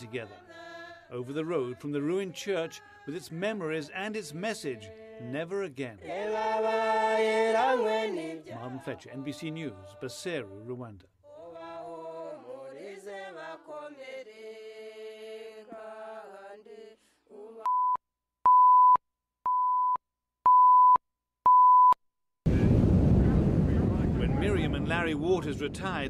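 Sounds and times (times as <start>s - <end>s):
group of voices singing: 0.0s - 17.7s
single-pitch reference beep: 17.7s - 22.0s.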